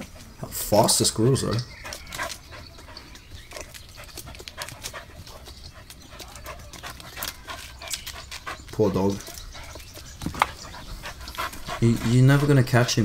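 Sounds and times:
dog panting hard: 0:00.0 - 0:13.0.

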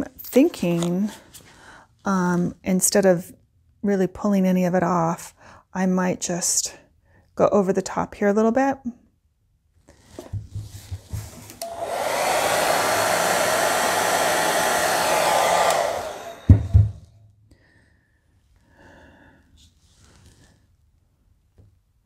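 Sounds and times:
hair dryer running: 0:11.0 - 0:17.0.

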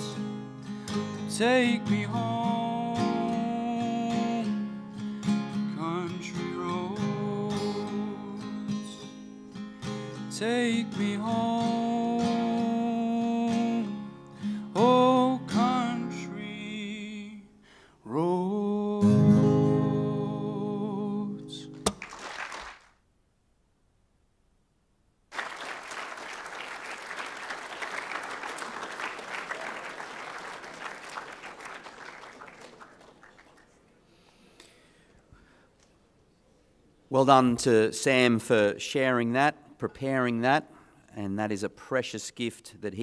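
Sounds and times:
man singing: 0:00.0 - 0:00.4, 0:01.1 - 0:04.6, 0:05.6 - 0:09.2, 0:10.1 - 0:21.8
acoustic guitar: 0:00.0 - 0:22.0
audience applauding: 0:21.9 - 0:23.0, 0:25.3 - 0:34.0.

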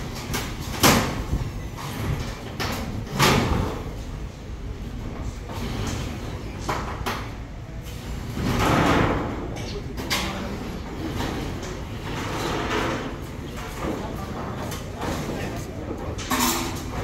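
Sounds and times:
corrugated metal sheets banging: 0:00.0 - 0:04.0, 0:08.3 - 0:09.6.

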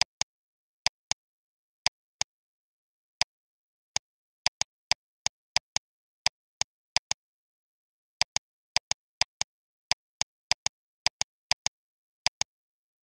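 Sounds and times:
computer mouse clicks: 0:00.0 - 0:00.3, 0:08.2 - 0:13.0.

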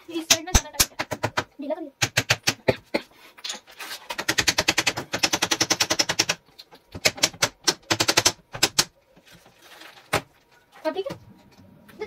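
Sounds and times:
hammer tapping on plastic: 0:00.3 - 0:02.8.

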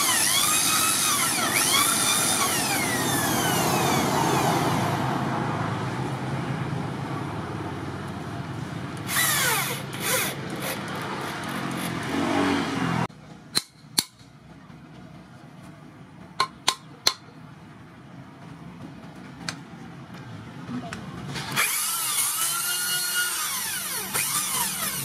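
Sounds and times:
electric drill boring into wood: 0:00.0 - 0:04.6, 0:09.1 - 0:12.0, 0:21.5 - 0:25.0.

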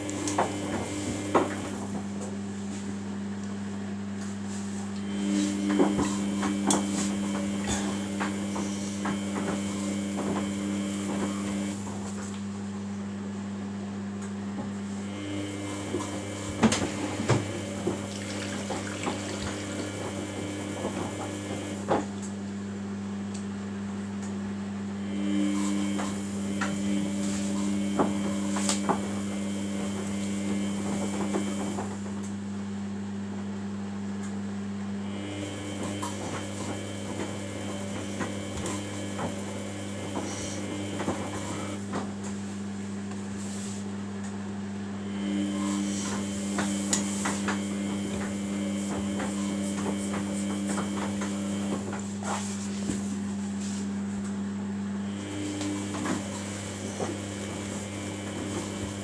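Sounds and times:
washing machine motor whining: 0:00.0 - 0:13.4, 0:14.2 - 0:22.6, 0:24.8 - 0:32.5, 0:34.0 - 0:59.0
steady hum: 0:04.9 - 0:12.3, 0:45.0 - 0:54.4
laundry sloshing in washing machine: 0:15.8 - 0:21.9, 0:55.4 - 0:59.0.

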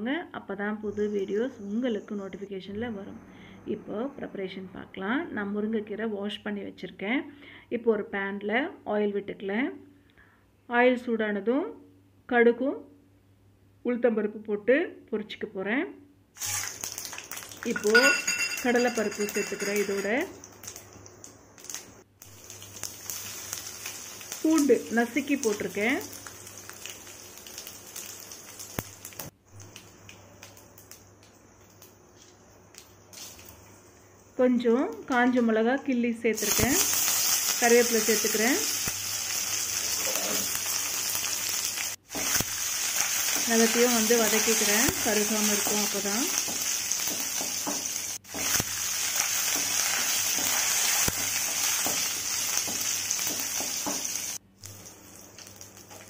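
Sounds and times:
oil sizzling and crackling: 0:16.4 - 0:35.5, 0:36.4 - 0:56.0.

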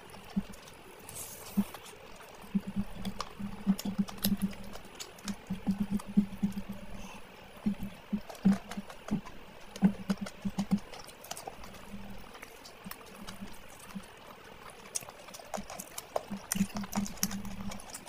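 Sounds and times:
lips smacking and chewing: 0:00.0 - 0:18.0.

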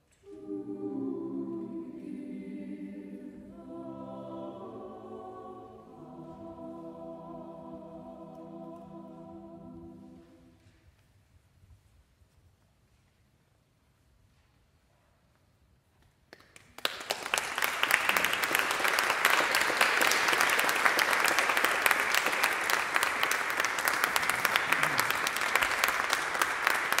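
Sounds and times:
audience applause: 0:16.6 - 0:27.0.

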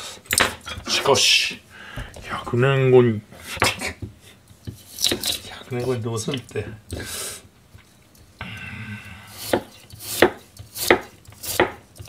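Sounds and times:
knife cutting on board: 0:09.4 - 0:11.8.

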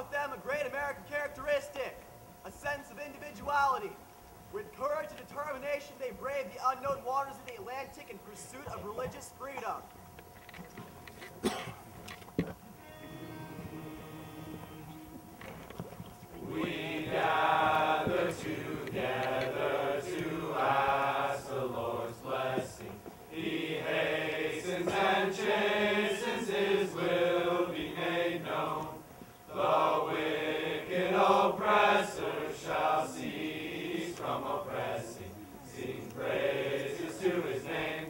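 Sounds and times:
male choir singing: 0:12.9 - 0:14.8, 0:16.4 - 0:38.0.

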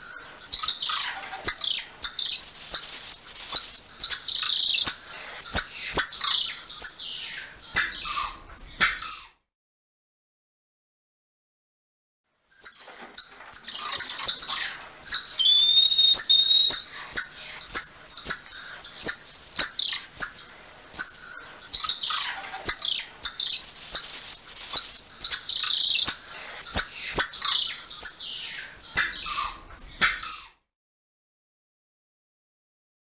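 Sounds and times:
monkey whistle call: 0:02.4 - 0:03.8, 0:15.4 - 0:16.9, 0:19.1 - 0:19.7, 0:23.4 - 0:25.1
monkeys chirping and squeaking: 0:12.6 - 0:20.3.

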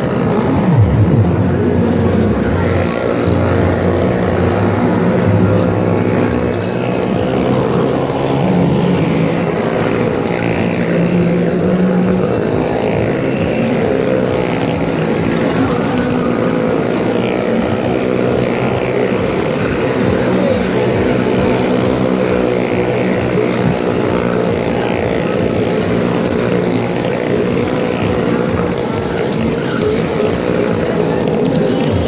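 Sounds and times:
car and motorcycle engines running: 0:00.0 - 0:32.0.

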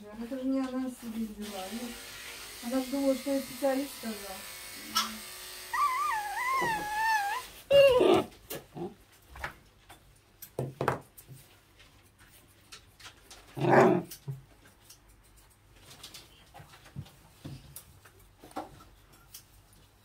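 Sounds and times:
puppy barking: 0:05.0 - 0:08.3
puppy yelping: 0:05.7 - 0:08.9.

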